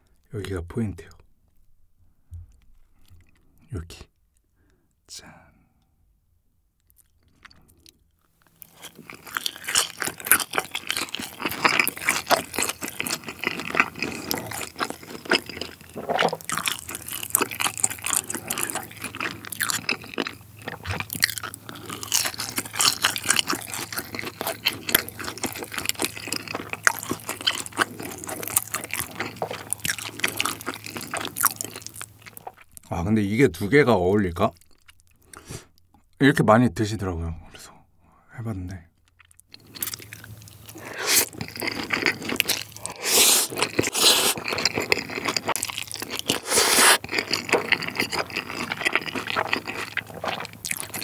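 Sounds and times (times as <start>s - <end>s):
crunchy chewing: 6.8s - 33.0s, 34.4s - 36.0s, 39.0s - 51.0s.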